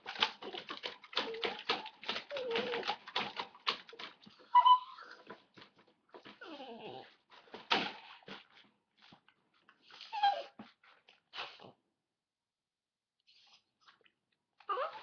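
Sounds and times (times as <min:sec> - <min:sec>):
dog growling and whimpering: 0:04.5 - 0:05.3, 0:06.4 - 0:07.2, 0:10.1 - 0:10.6, 0:14.6 - 0:15.0.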